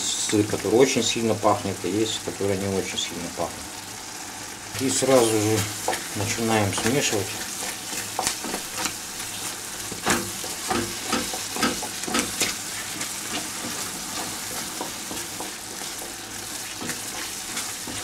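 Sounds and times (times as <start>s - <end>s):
sauce sizzling in pan: 0.0s - 18.0s
wooden spatula scraping pan: 5.0s - 18.0s.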